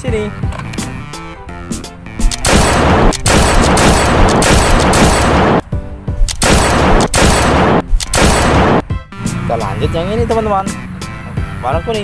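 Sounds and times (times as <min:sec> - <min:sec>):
rapid-fire gunfire bursts: 0:02.3 - 0:05.6, 0:06.3 - 0:08.8.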